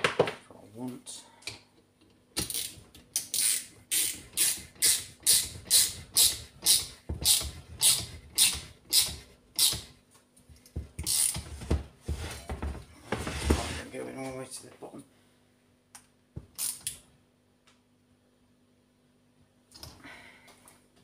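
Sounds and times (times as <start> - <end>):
ratchet clicking: 2.4 - 9.9, 11.0 - 11.4, 16.6 - 17.0.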